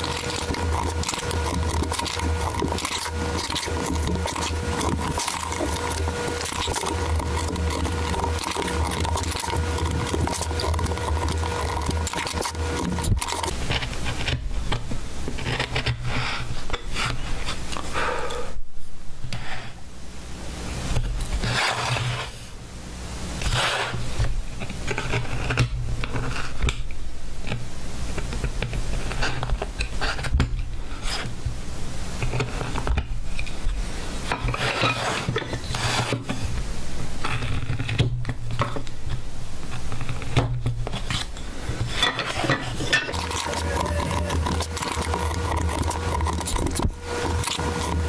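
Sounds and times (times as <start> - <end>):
chisel scraping wood: 0.0 - 14.5, 15.3 - 17.6, 21.4 - 22.4, 23.4 - 24.1, 34.3 - 36.4, 39.7 - 48.0
steady low hum: 0.0 - 48.0.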